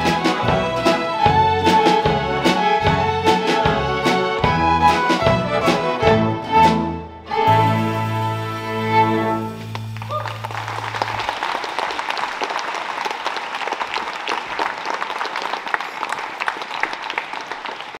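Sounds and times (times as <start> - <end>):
strings holding low note: 4.5 - 11.3
audience applauding: 9.5 - 18.0.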